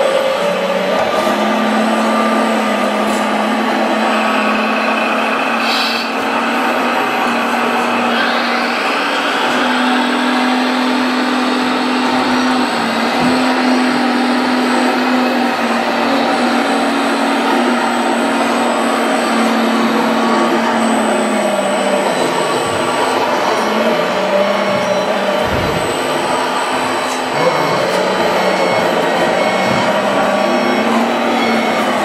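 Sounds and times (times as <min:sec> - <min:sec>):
electric motors whirring: 0:00.0 - 0:32.0
toy bulldozer engine sound humming: 0:00.0 - 0:32.0.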